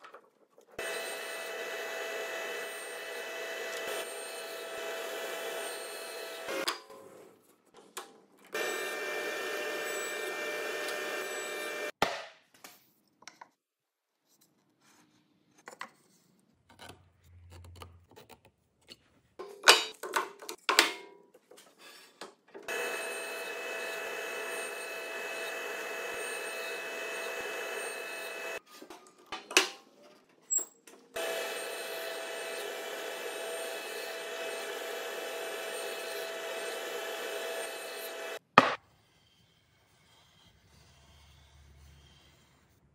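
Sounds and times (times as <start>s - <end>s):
table saw whining: 0.8s - 6.7s, 8.6s - 12.0s, 22.7s - 28.6s, 31.2s - 38.4s.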